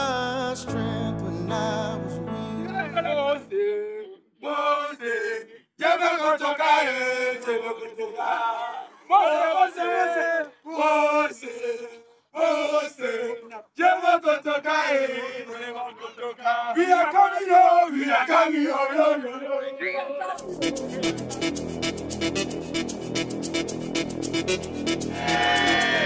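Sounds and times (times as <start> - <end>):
sustained music: 0.0 - 3.5, 20.4 - 26.0
men chanting in unison: 2.6 - 21.0, 25.1 - 26.0.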